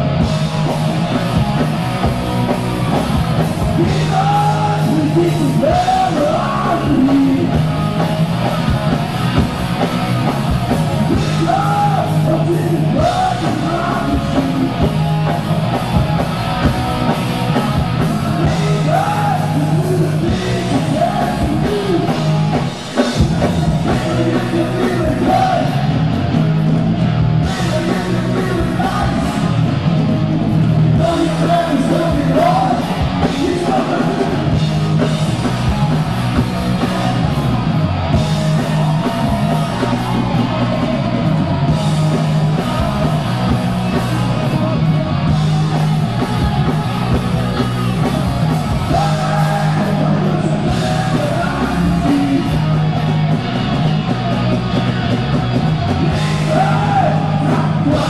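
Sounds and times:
hard rock band playing: 0.0s - 58.0s
man shouting lead vocal: 3.7s - 7.6s, 11.1s - 14.8s, 18.3s - 22.2s, 23.9s - 25.9s, 27.4s - 29.5s, 31.0s - 34.5s, 48.8s - 52.8s, 56.2s - 58.0s.

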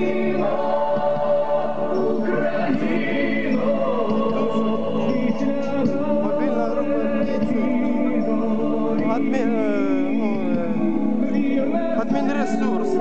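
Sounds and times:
choral music over loudspeakers: 0.0s - 13.0s.

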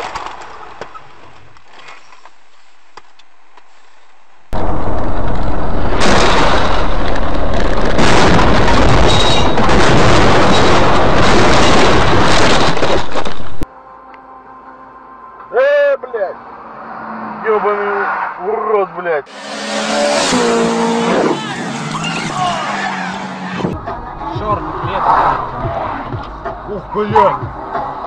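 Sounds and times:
road noise: 0.0s - 28.0s
car crash: 4.6s - 13.6s, 19.3s - 24.0s.

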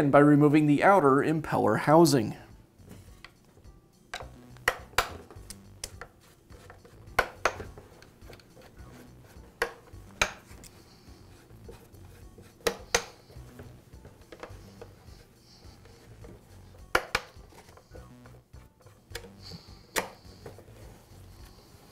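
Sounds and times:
tools clicking and knocking on workbench: 4.1s - 8.7s, 9.5s - 10.8s, 12.6s - 15.0s, 16.2s - 20.6s.

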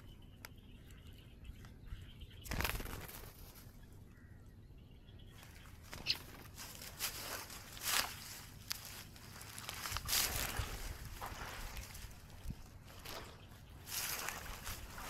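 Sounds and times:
grass rustling and brushing: 5.4s - 15.0s.

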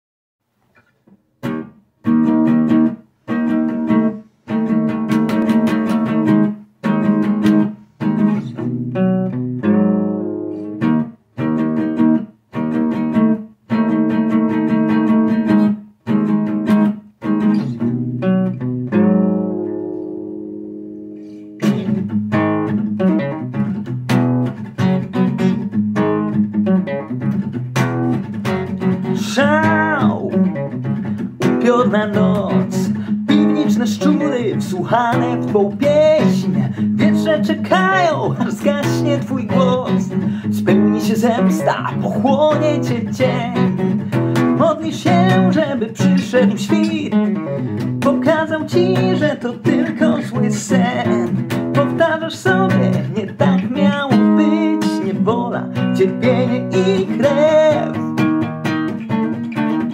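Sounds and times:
acoustic guitar strumming: 0.7s - 59.9s.

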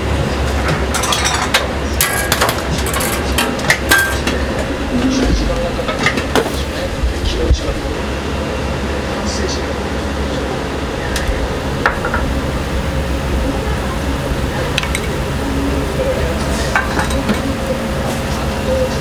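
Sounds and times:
low hum and hiss: 0.0s - 19.0s
utensils and pots clinking: 0.4s - 6.9s, 14.4s - 19.0s.

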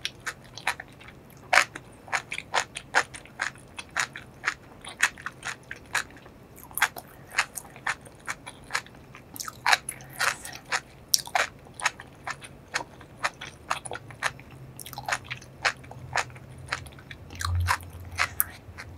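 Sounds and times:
person chewing food: 0.0s - 18.9s.

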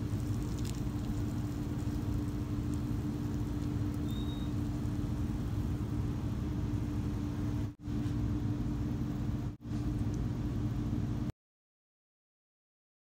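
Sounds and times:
low mechanical hum: 0.0s - 11.3s.

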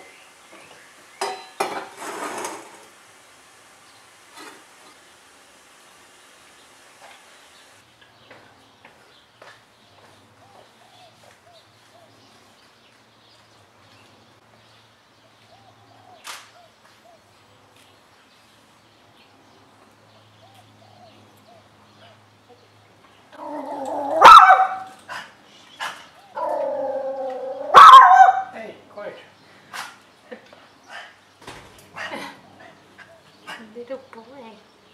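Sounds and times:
dog barking: 23.4s - 28.6s.

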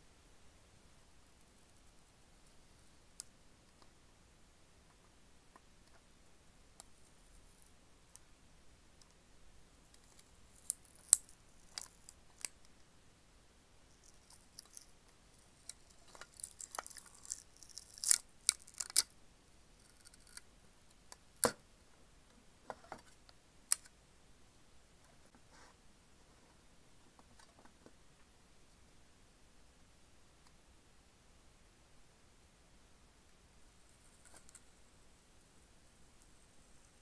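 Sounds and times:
sticker peeling crackles: 14.0s - 19.1s.

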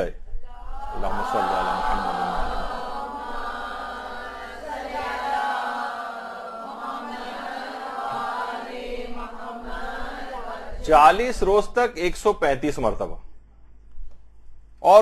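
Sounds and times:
voices chanting: 0.6s - 11.2s.

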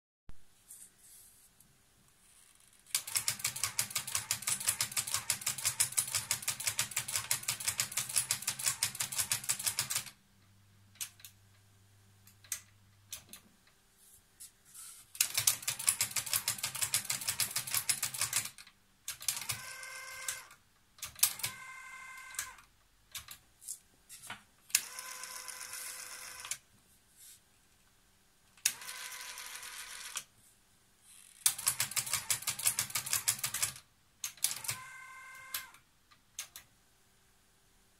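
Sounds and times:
tape mechanism rapid clicks: 2.9s - 10.2s, 15.2s - 21.6s, 31.3s - 35.8s.

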